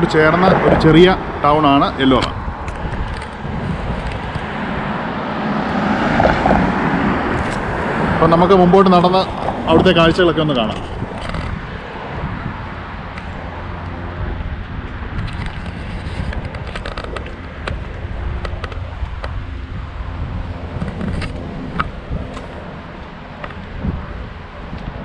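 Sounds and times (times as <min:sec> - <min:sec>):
low outdoor rumble: 0:00.0 - 0:25.0
light clicks and scrapes: 0:15.1 - 0:19.4.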